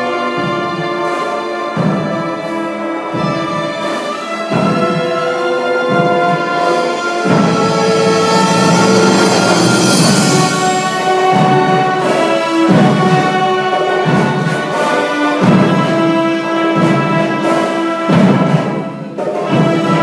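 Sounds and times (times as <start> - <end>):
orchestra playing held chords: 0.0 - 20.0
low recurring strokes: 6.2 - 13.1.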